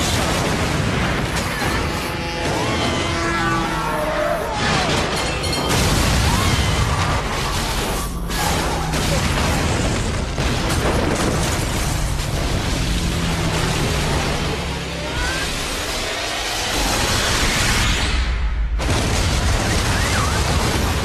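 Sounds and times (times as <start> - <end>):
crashing debris: 0.0 - 3.1, 4.6 - 14.9.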